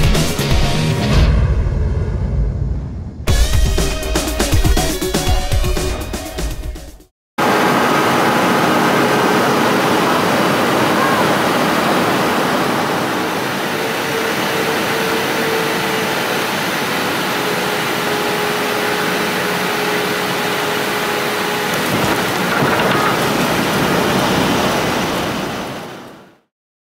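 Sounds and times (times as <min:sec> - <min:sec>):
airliner cabin engine and airflow rush: 0:07.4 - 0:22.5.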